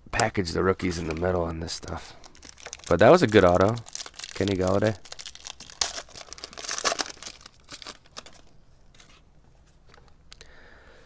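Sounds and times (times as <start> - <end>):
foil wrapper crinkling and tearing: 0.8 - 8.5.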